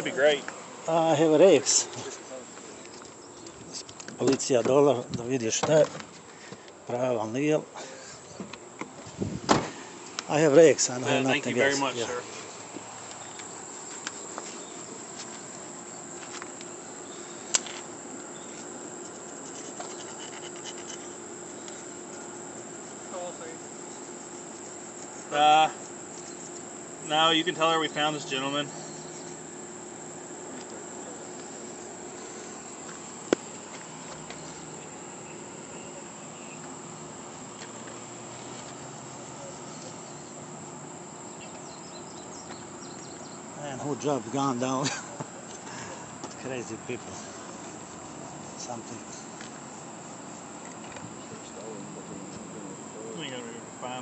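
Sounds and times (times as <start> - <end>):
insects droning: 0.0 - 54.0
metal tool scraping: 19.0 - 21.2.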